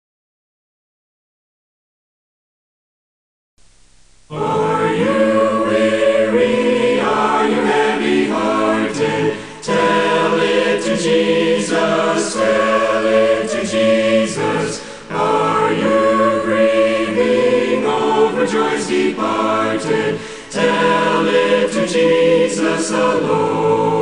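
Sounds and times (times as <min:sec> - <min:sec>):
vocal group singing a hymn: 0:04.3 - 0:24.0
singer breath: 0:09.3 - 0:09.7, 0:14.8 - 0:15.1, 0:20.1 - 0:20.6.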